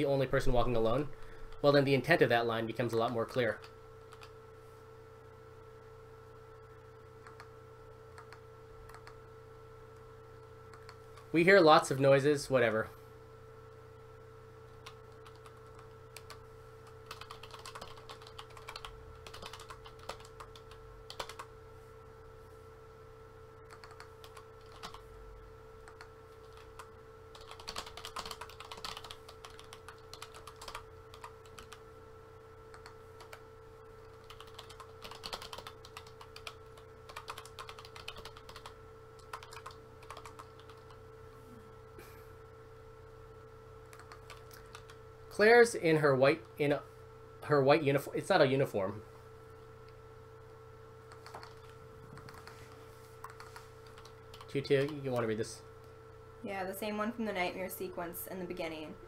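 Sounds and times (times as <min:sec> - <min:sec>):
faint steady hum: 0:00.0 - 0:59.0
typing on computer keyboard: 0:03.6 - 0:04.3, 0:08.2 - 0:09.2, 0:14.8 - 0:16.4, 0:17.0 - 0:21.5, 0:23.7 - 0:25.0, 0:25.8 - 0:31.8, 0:34.1 - 0:41.0, 0:43.9 - 0:45.0, 0:51.1 - 0:52.6, 0:53.2 - 0:55.0.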